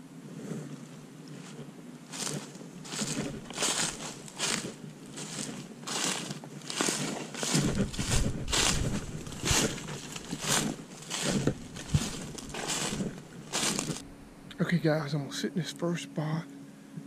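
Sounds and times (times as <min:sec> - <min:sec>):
footsteps crunching dry leaves: 0:01.4 - 0:14.1.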